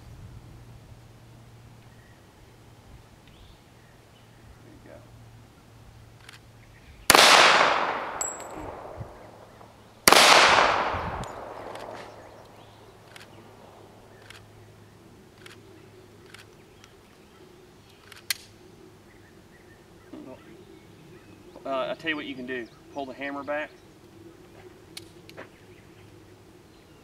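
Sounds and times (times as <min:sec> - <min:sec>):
pistol shots with echo: 0:07.1 - 0:12.6.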